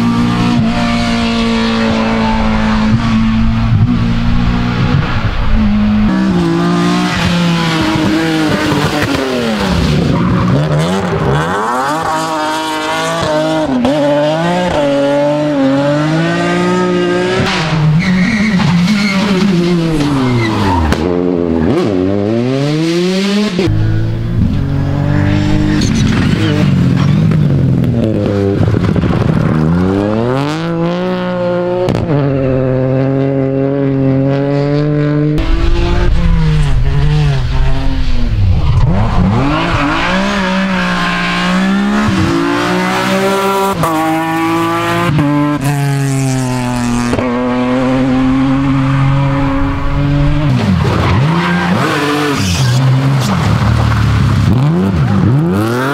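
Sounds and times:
rally car engines revving: 0:00.0 - 0:55.9
tyre squeal: 0:18.0 - 0:21.0.

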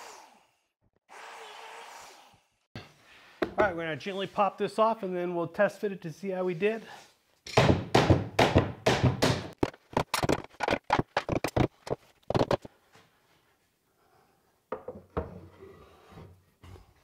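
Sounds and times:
sharp wooden cracks and knocks: 0:07.5 - 0:12.7.

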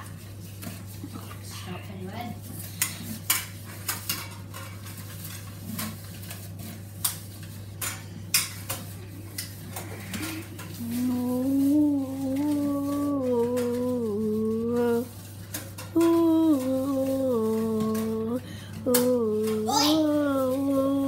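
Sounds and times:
spatula stirring thick batter: 0:00.0 - 0:09.3
person humming: 0:10.1 - 0:15.1, 0:15.9 - 0:21.0.

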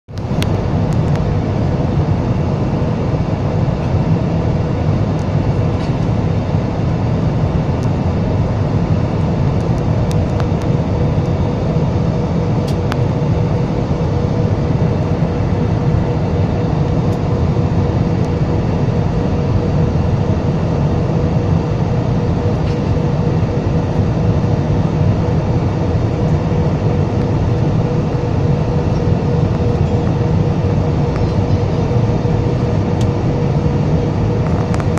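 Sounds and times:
constant hum: 0:00.1 - 0:34.9
jet engines and rushing air roar: 0:00.1 - 0:34.9.

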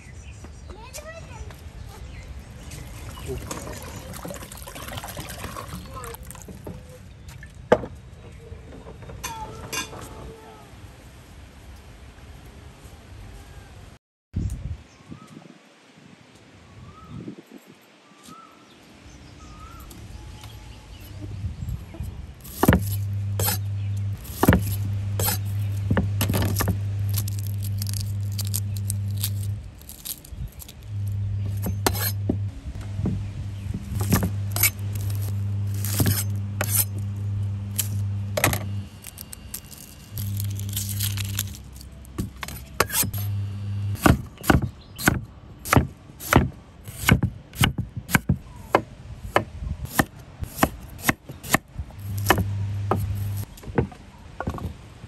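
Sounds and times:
low steady hum: 0:19.8 - 0:47.7, 0:48.3 - 0:53.6
knife chopping on board: 0:22.5 - 0:23.6, 0:24.2 - 0:27.3, 0:31.5 - 0:32.4, 0:33.9 - 0:36.9, 0:44.0 - 0:53.4.

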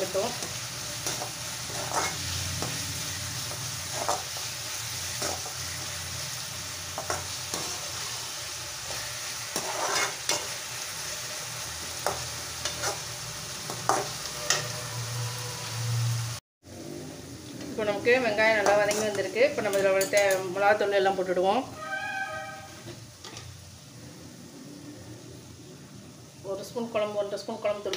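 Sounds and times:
food sizzling in oil: 0:00.0 - 0:27.9
spoon scraping and knocking pan: 0:00.3 - 0:02.9, 0:03.5 - 0:04.5, 0:05.1 - 0:05.6, 0:06.9 - 0:08.0, 0:08.8 - 0:10.6, 0:11.9 - 0:14.8.

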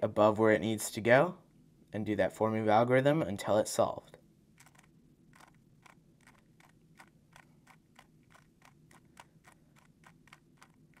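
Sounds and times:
speed cube clicking: 0:04.6 - 0:11.0.

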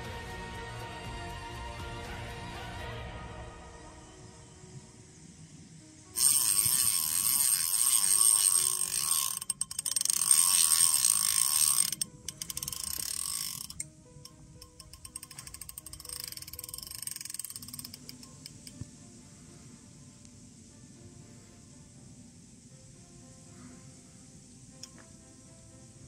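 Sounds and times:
fishing reel drag ratcheting: 0:06.2 - 0:18.8
reel clicking: 0:06.2 - 0:18.8.

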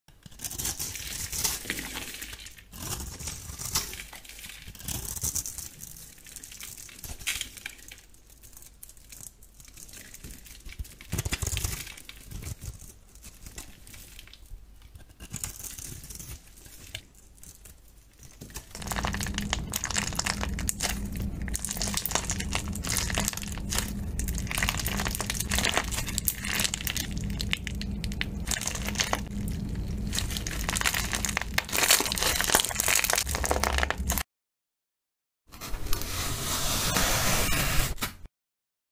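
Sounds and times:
knife scraping soap: 0:00.2 - 0:08.0, 0:14.9 - 0:18.8
crackling bead slime squeezed: 0:18.4 - 0:34.2.

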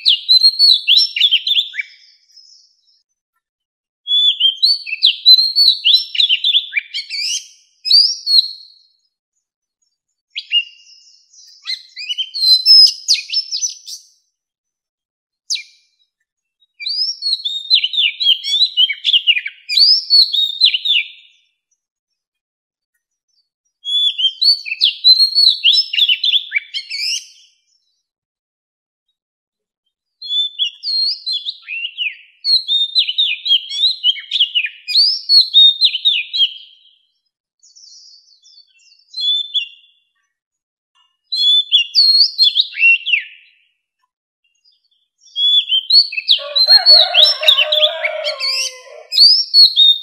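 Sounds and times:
bird singing whistled notes: 0:00.0 - 0:03.0, 0:04.1 - 0:09.1, 0:10.3 - 0:14.2, 0:15.5 - 0:16.0, 0:16.6 - 0:21.4, 0:23.8 - 0:27.7, 0:30.2 - 0:40.2, 0:41.2 - 0:43.7, 0:44.5 - 0:50.0.

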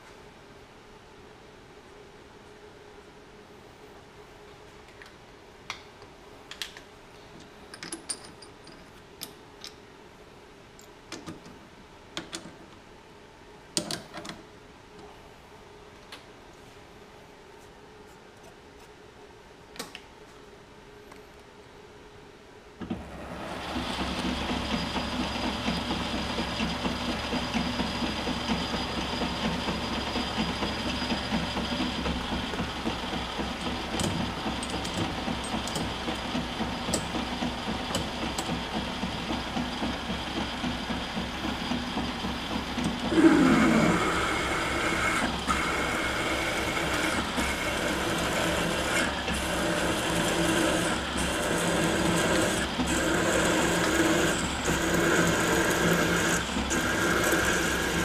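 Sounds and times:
lathe motor running: 0:23.0 - 0:58.0
drill boring into metal: 0:43.1 - 0:58.0.

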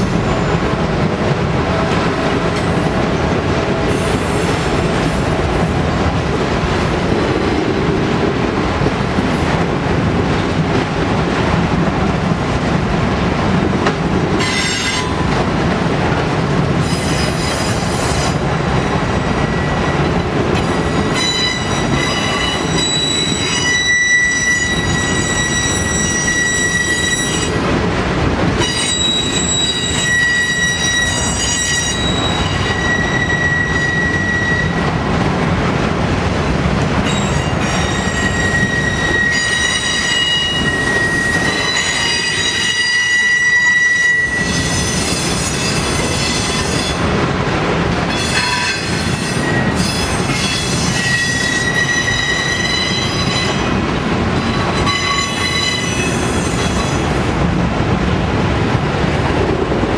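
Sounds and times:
train wheels squealing: 0:16.8 - 0:18.4, 0:20.6 - 0:27.6, 0:28.6 - 0:34.9, 0:37.1 - 0:47.0, 0:48.1 - 0:53.7, 0:54.4 - 0:57.1.

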